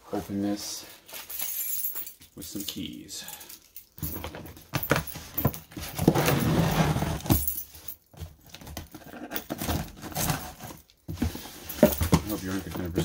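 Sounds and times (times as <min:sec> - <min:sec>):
keys jangling: 0:01.1 - 0:06.1.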